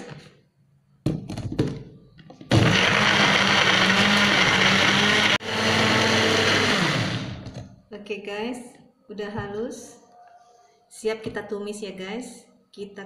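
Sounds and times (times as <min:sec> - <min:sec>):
blender motor grinding: 0:02.5 - 0:07.6.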